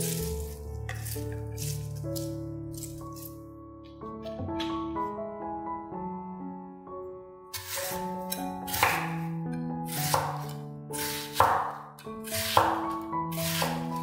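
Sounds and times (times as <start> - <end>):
knife chopping vegetables: 0.0 - 3.3, 7.5 - 9.3, 9.9 - 14.0
piano music: 0.0 - 14.0.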